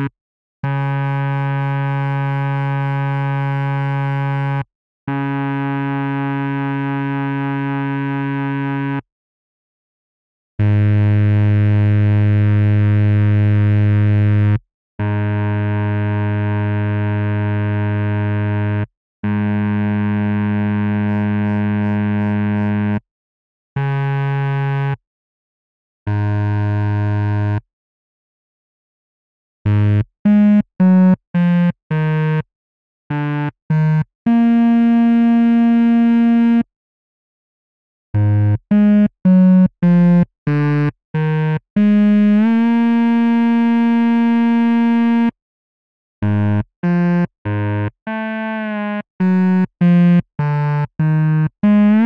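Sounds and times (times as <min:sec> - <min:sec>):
synthesized horn-like notes: 0:00.0 - 0:02.9, 0:05.1 - 0:09.0, 0:10.6 - 0:23.0, 0:33.1 - 0:36.7, 0:38.2 - 0:45.4, 0:46.2 - 0:52.0
low buzzy synthesizer tone: 0:10.6 - 0:16.9.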